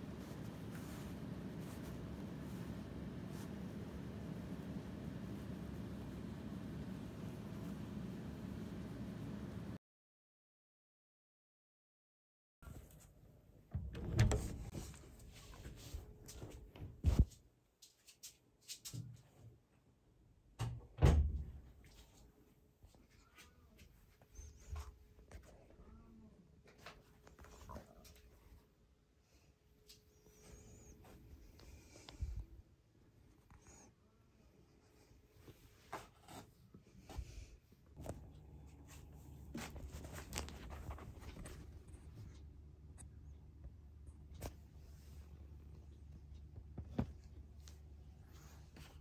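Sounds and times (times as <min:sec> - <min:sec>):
fabric rustling and scratching: 0:00.0 - 0:08.4, 0:38.0 - 0:41.9
low steady hum: 0:00.0 - 0:09.8, 0:36.8 - 0:49.0.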